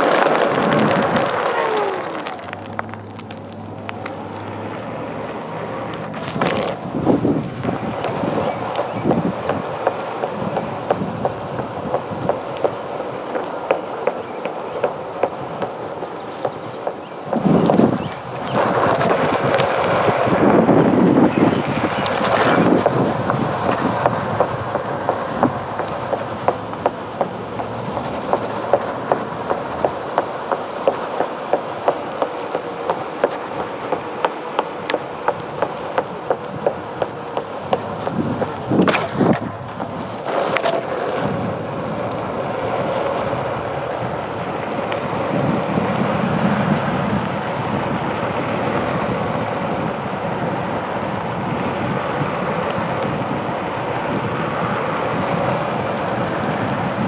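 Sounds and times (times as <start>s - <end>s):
sudden loud noises: 0.0s - 16.1s
clicking over pavement joints: 0.0s - 20.8s, 21.5s - 42.3s, 42.9s - 45.7s, 46.7s - 57.0s
board tire rolling over pavement: 0.0s - 57.0s
wind on microphone: 0.0s - 57.0s.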